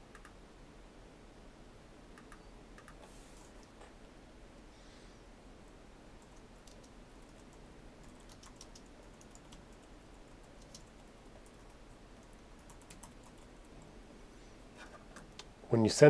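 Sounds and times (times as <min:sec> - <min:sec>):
typing on computer keyboard: 0:02.2 - 0:03.0, 0:06.2 - 0:13.9.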